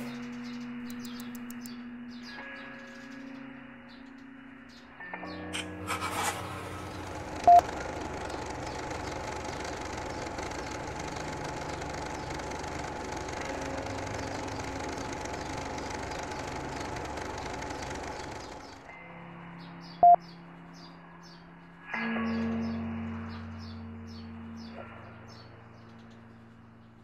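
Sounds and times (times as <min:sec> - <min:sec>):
mechanical whirring drone: 0:00.0 - 0:01.8, 0:05.6 - 0:18.8.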